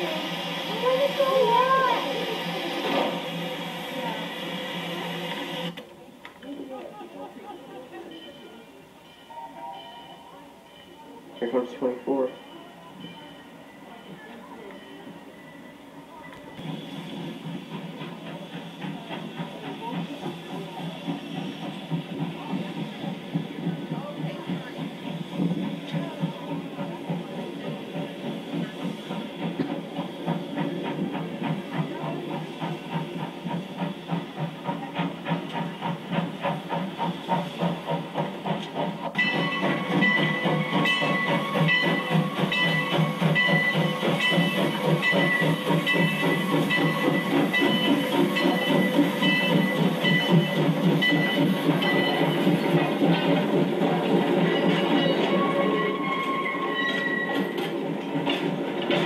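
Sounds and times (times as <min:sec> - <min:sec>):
steam locomotive chuffing: 0:00.0 - 0:59.0.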